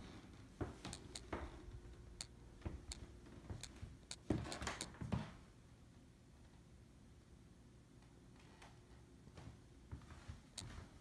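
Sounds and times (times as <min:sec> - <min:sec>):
light clicks and soft thumps: 0:00.2 - 0:05.3.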